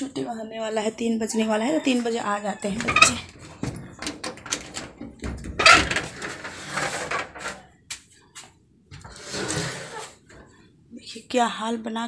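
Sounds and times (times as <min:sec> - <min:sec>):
rustling: 0:02.7 - 0:07.7
loud clatter: 0:02.8 - 0:07.6.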